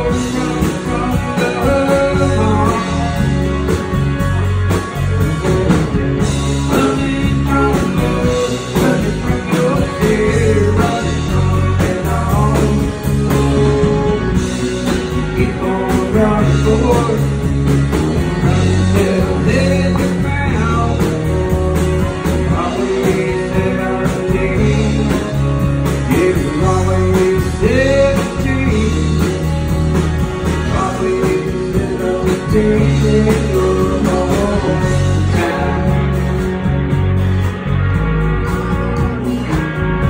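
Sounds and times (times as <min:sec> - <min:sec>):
man singing into a microphone: 0:00.0 - 0:03.4, 0:06.6 - 0:17.5, 0:18.3 - 0:29.5, 0:30.4 - 0:36.5
drum kit: 0:00.0 - 0:40.0
electric guitars: 0:00.0 - 0:40.0.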